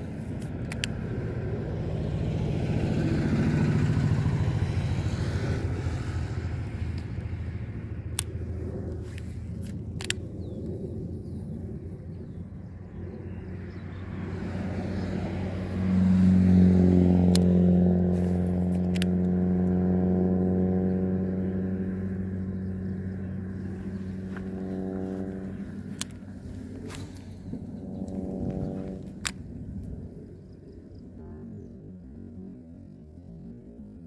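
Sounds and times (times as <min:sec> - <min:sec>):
vehicle engine running: 0:00.0 - 0:34.0
sharp clicks: 0:00.3 - 0:01.2, 0:08.1 - 0:10.8, 0:17.2 - 0:17.6, 0:18.5 - 0:19.8.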